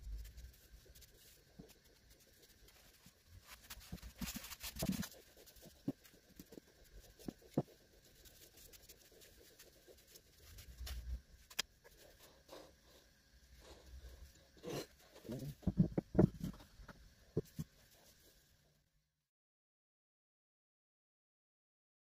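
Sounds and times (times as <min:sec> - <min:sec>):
soft scratchy rubbing: 0:00.0 - 0:15.8, 0:17.4 - 0:18.5
wood knocking on wood: 0:15.6 - 0:16.6.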